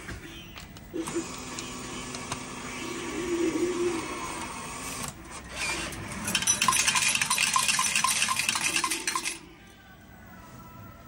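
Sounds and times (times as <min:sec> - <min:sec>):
coins clattering into metal tray: 0:06.2 - 0:09.4.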